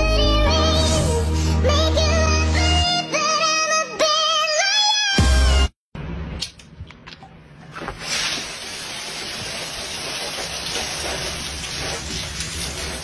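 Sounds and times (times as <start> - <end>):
soda fizzing in bottle: 8.0 - 13.0.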